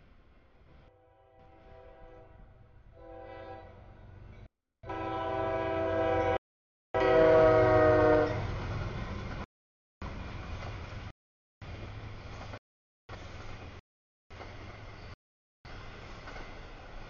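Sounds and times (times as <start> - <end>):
locomotive air horn: 0.9 - 2.4, 3.0 - 3.9, 4.8 - 6.4, 7.0 - 8.4
train rumbling past: 7.0 - 17.0.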